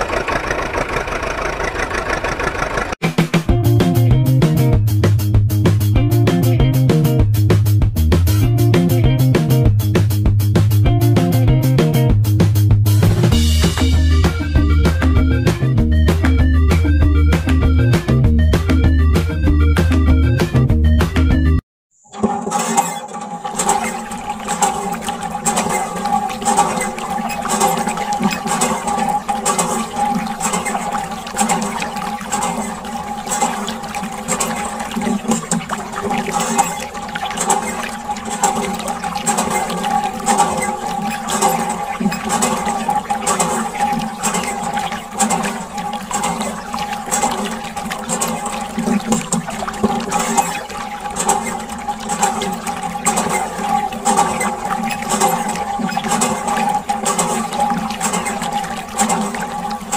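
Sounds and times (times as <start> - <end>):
water stream splashing on toys: 22.6 - 59.9.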